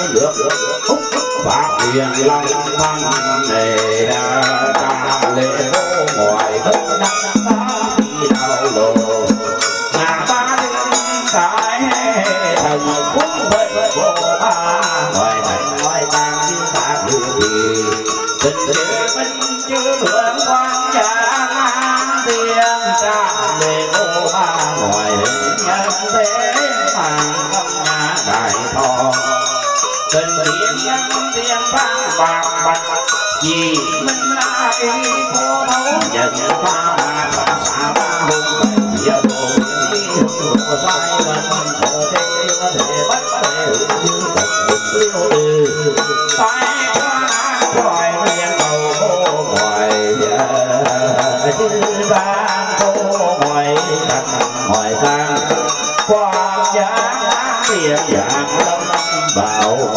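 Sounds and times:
melodic instruments playing: 0.0 - 14.6
rattling percussion: 0.0 - 59.9.

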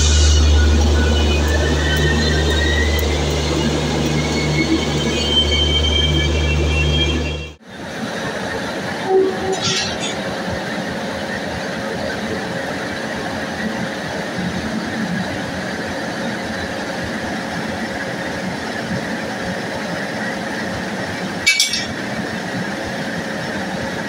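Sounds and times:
locomotive machinery hum: 0.0 - 24.0
sharp metallic clink: 21.5 - 22.0.

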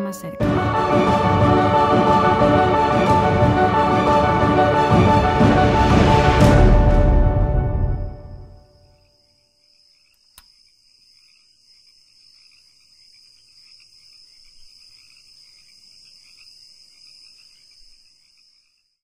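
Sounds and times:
crickets chirping: 7.9 - 19.0
click: 10.1 - 10.5.

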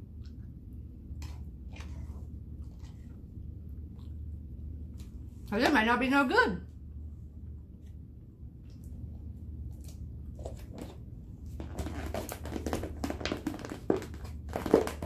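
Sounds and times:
steady low hum: 0.0 - 15.0
plastic fork scraping container: 1.2 - 3.1.

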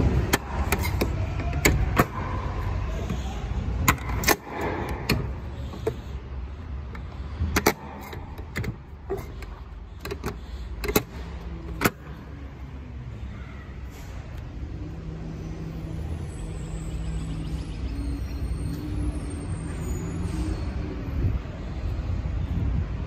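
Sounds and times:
sharp clicks and knocks: 6.8 - 12.1.

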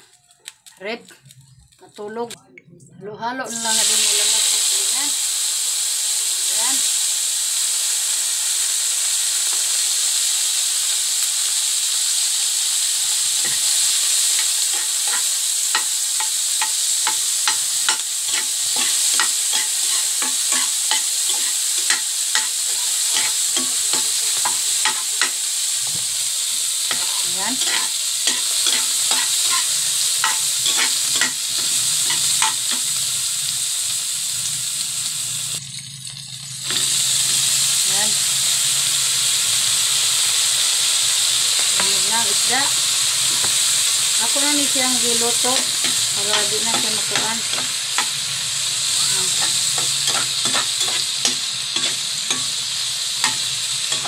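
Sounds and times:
vegetables sizzling in hot oil: 0.0 - 2.4, 3.4 - 54.0
metal spatula scraping a pan: 13.4 - 26.0, 26.9 - 33.0, 44.3 - 54.0.

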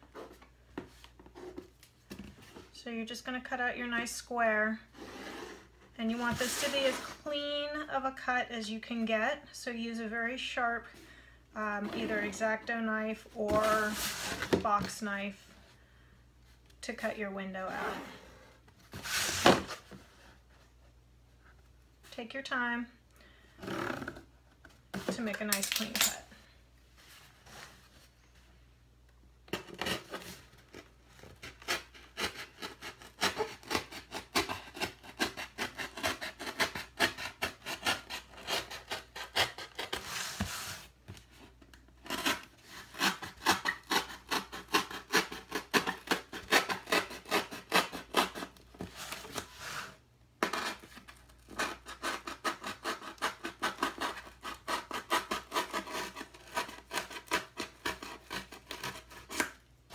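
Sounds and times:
knife cutting cardboard: 29.5 - 40.9, 42.0 - 59.6.

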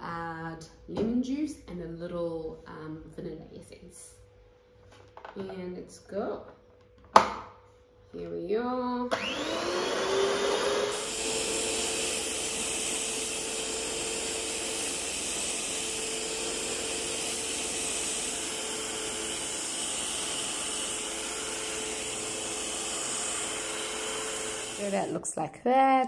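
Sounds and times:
stand mixer motor hum: 9.1 - 24.9.

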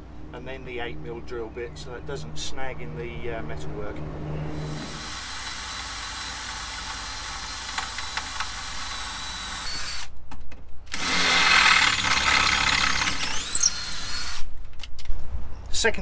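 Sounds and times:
cordless drill boring into steel: 4.7 - 10.1, 10.9 - 14.5.

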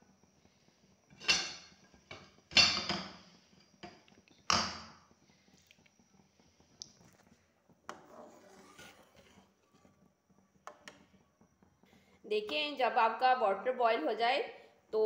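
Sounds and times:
metal spoon scraping a steel pot: 7.9 - 9.8.

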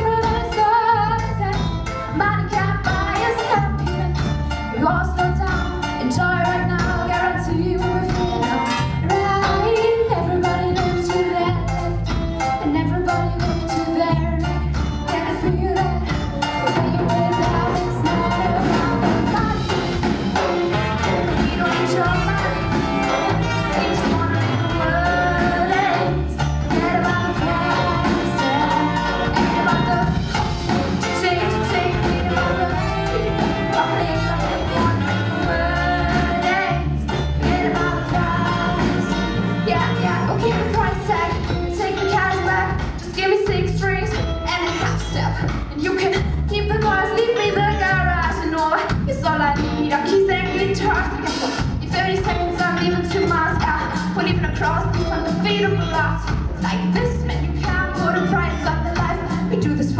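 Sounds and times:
bass guitar: 0.0 - 59.9
drums: 0.0 - 59.9
reggae band playing: 0.0 - 59.9
woman singing: 0.0 - 59.9
saxophone: 16.1 - 42.6
trumpet: 16.6 - 26.1, 26.7 - 41.2.

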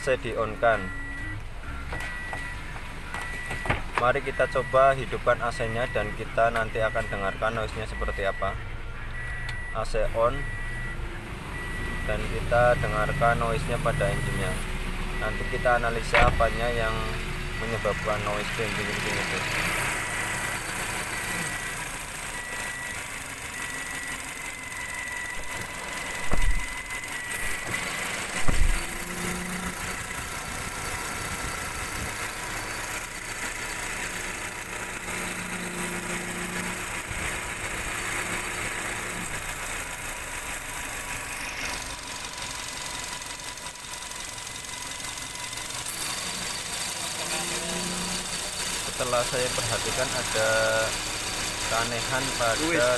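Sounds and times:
car engine idling: 0.0 - 52.9
compressor clutch jingling rattle: 17.9 - 52.9.

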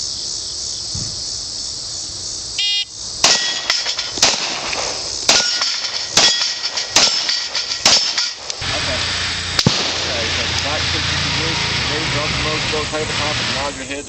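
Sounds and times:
shot timer beep: 2.6 - 2.9
pistol shots: 3.2 - 8.6, 9.6 - 10.4.

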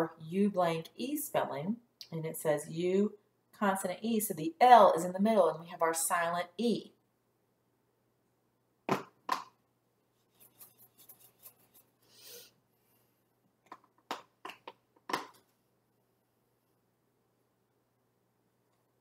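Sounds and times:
eraser rubbing whiteboard: 10.2 - 12.0.

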